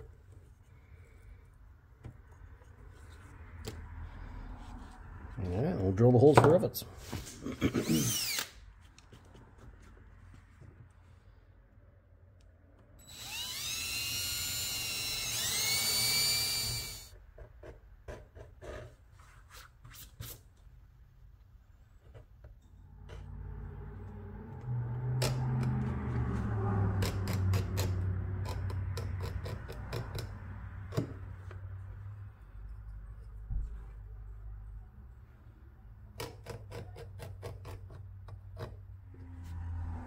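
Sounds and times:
cordless drill boring whine: 7.8s - 8.5s, 13.0s - 17.1s.

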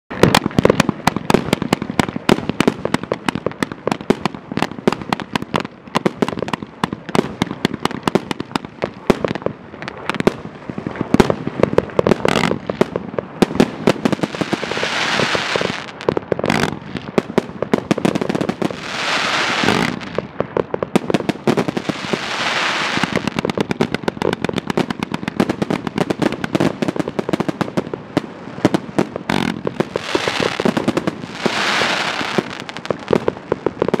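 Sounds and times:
fireworks barrage: 0.1s - 34.0s
firework hissing: 13.6s - 17.2s, 18.0s - 20.3s, 21.1s - 23.7s, 28.4s - 33.7s.

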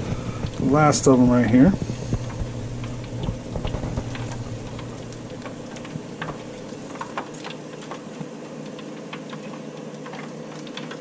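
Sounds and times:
steady low hum: 0.0s - 8.5s
oil bubbling and crackling: 0.0s - 11.0s.

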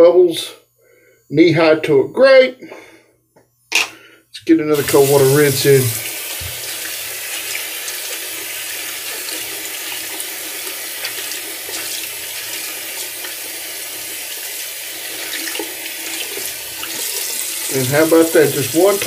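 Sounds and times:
tap running into a sink: 5.9s - 8.1s.

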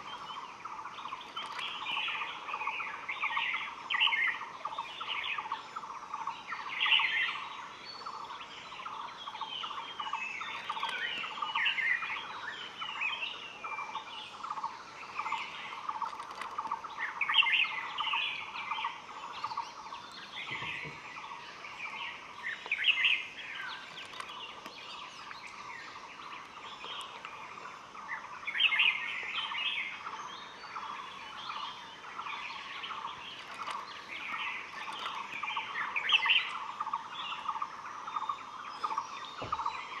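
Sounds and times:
small birds chirping and singing: 0.0s - 40.0s
soft thump: 39.4s - 39.7s.

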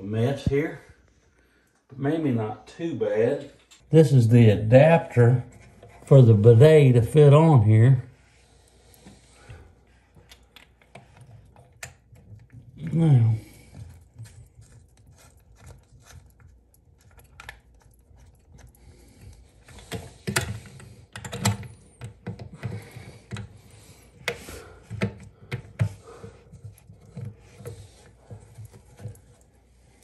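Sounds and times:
clicks and knocks of fittings: 10.2s - 12.8s, 13.7s - 29.5s.

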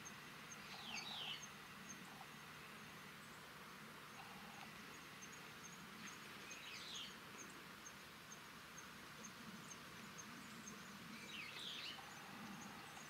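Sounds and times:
bird calling: 0.0s - 2.4s, 11.2s - 13.0s.

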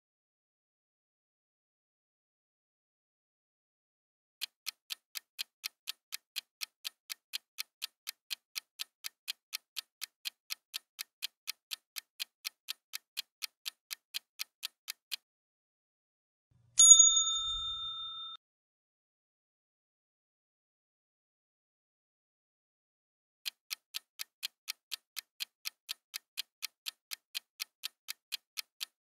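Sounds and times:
clock ticking: 4.4s - 15.2s, 23.4s - 29.0s
bell chime: 16.8s - 18.4s.

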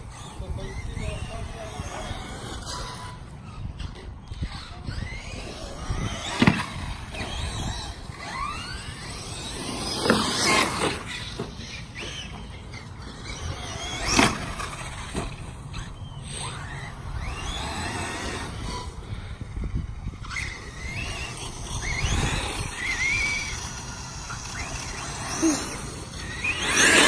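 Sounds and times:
electric motors whining: 0.0s - 27.0s
sharp thumps: 6.2s - 7.7s.

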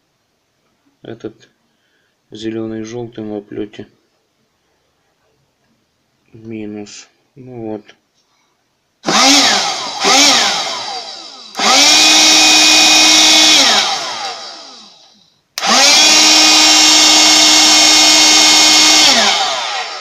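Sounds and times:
electric air pump motor whining: 9.0s - 20.0s.

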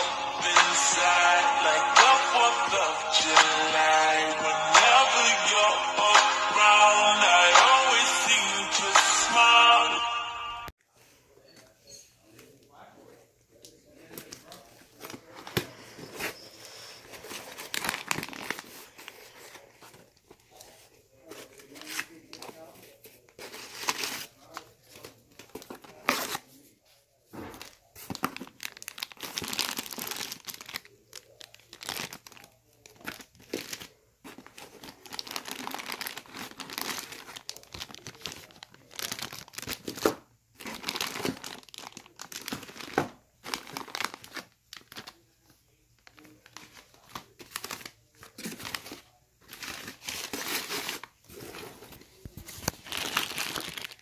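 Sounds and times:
paper and plastic bags crinkling: 13.6s - 54.0s.

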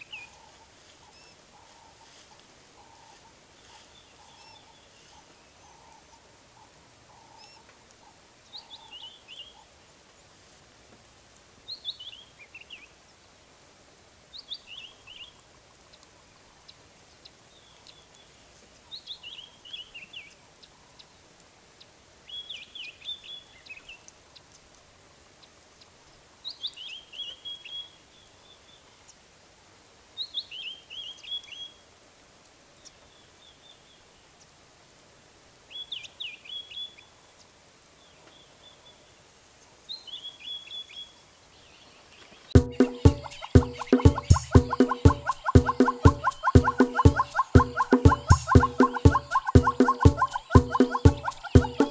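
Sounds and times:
faint background hiss: 0.0s - 51.9s
bird singing: 41.8s - 51.9s.

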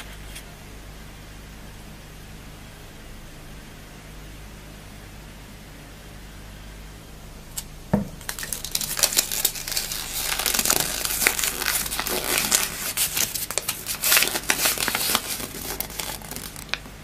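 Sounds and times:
foil wrapper crinkling: 8.2s - 17.0s.

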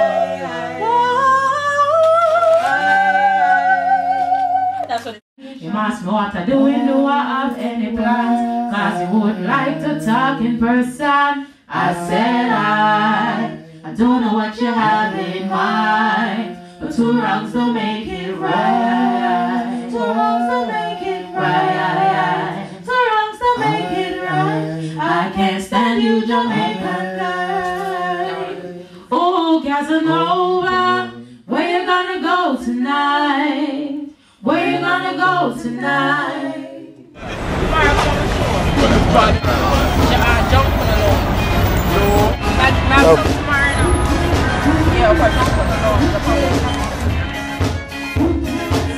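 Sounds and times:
woman singing a cappella: 0.0s - 37.1s.

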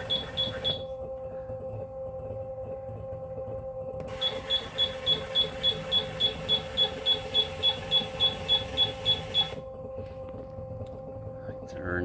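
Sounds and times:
machine humming: 0.0s - 12.0s.

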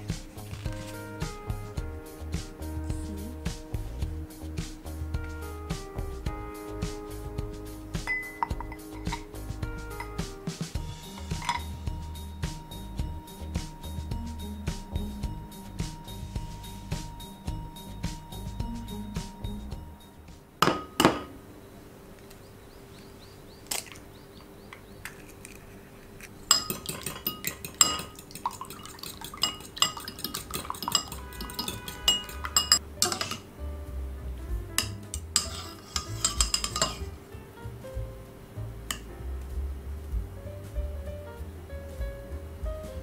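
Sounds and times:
dishes knocking: 8.1s - 9.3s, 11.2s - 11.7s, 20.6s - 21.4s, 26.5s - 33.4s, 34.8s - 37.1s
chopsticks clinking in bowl: 26.5s - 33.4s, 34.8s - 37.1s.

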